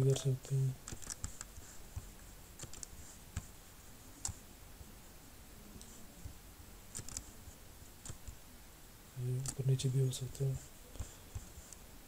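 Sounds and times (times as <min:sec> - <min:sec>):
faint room hiss: 0:00.0 - 0:12.0
computer mouse clicks: 0:00.8 - 0:03.5, 0:04.2 - 0:04.4, 0:06.9 - 0:07.3, 0:08.0 - 0:08.4, 0:09.4 - 0:09.6.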